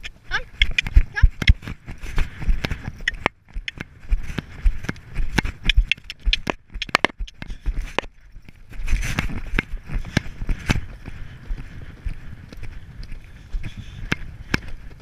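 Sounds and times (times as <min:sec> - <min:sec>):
horse hoofbeats on gravel: 0:00.0 - 0:15.0.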